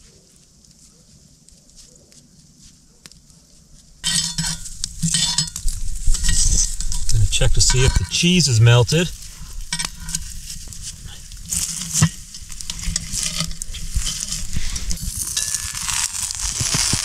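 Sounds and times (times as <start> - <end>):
coals and pot sizzling: 3.7 - 17.0.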